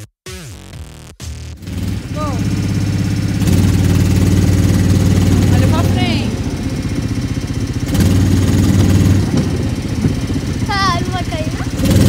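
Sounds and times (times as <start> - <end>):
electronic dance music: 0.0 - 1.6
kart engine running: 1.5 - 12.0.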